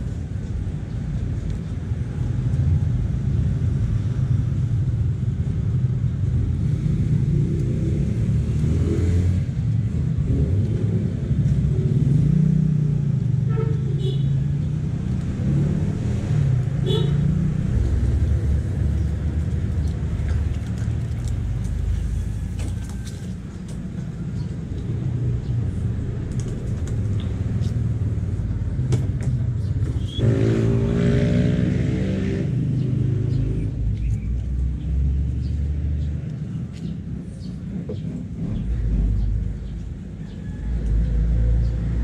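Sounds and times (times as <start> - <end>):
road traffic rumble: 0.0 - 42.0
vehicle engine passing: 30.1 - 39.8.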